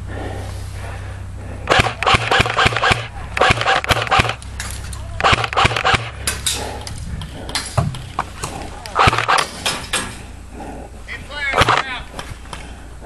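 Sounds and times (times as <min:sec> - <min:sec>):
airsoft gun firing rapid shots: 0:01.7 - 0:04.4, 0:05.2 - 0:06.3, 0:09.0 - 0:09.6, 0:11.6 - 0:12.0.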